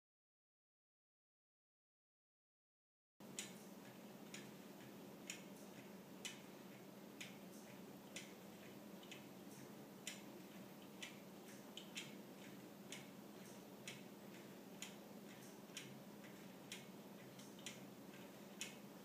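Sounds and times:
wooden clock ticking: 3.2s - 18.9s.

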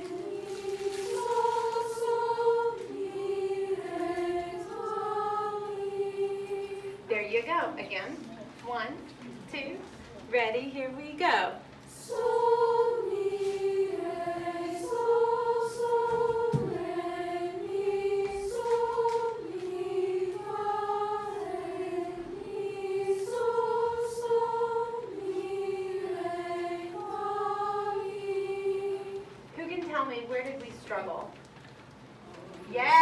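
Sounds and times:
youth choir singing: 0.0s - 7.5s, 11.9s - 29.5s.

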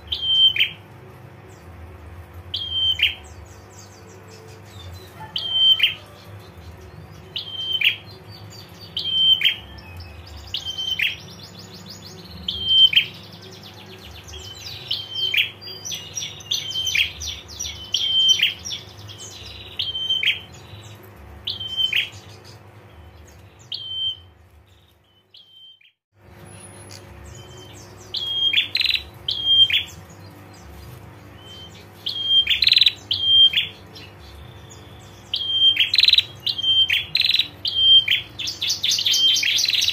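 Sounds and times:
low hum: 6.2s - 25.5s, 26.2s - 38.7s.

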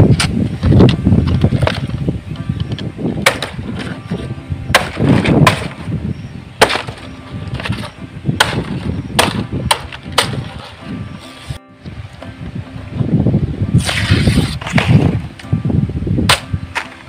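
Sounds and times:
sickle chopping palm fronds: 3.2s - 4.1s, 4.7s - 5.8s, 6.6s - 10.7s, 16.3s - 17.0s.

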